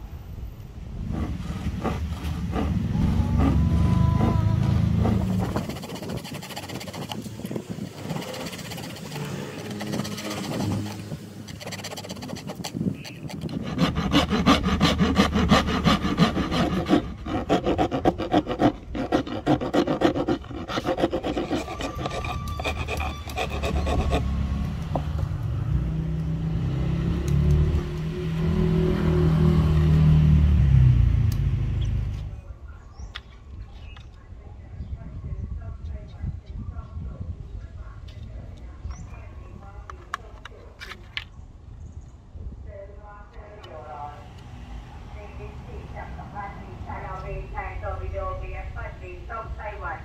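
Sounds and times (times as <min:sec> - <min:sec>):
low engine hum: 0:00.0 - 0:06.0, 0:23.1 - 0:33.0, 0:43.4 - 0:50.0
wood rasp scraping wood: 0:01.0 - 0:25.2.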